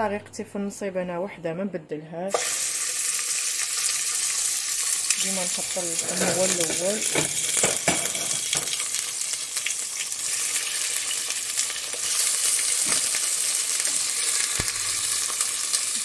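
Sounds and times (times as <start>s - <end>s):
meat sizzling in hot oil: 2.3s - 16.0s.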